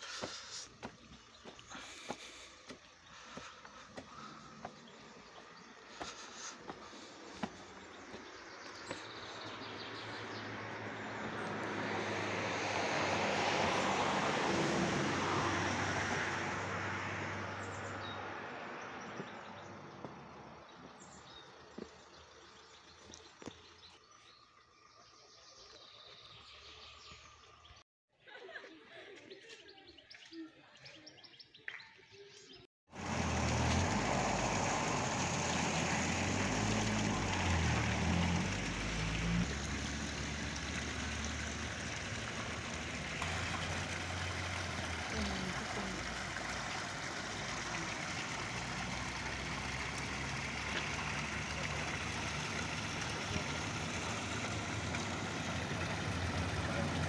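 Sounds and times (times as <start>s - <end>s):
vehicle engine running: 0.0s - 9.8s, 32.9s - 57.0s
street noise: 0.0s - 16.4s, 33.0s - 57.0s.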